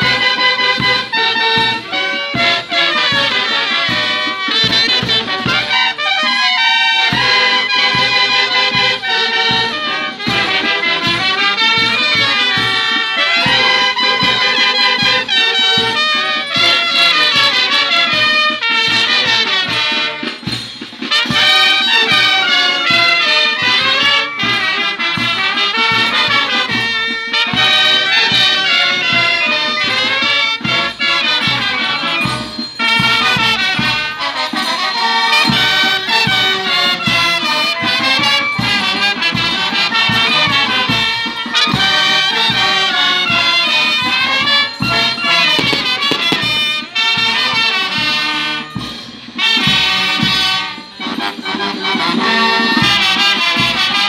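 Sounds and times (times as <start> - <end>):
brass band playing dance tune: 0.0 - 54.0.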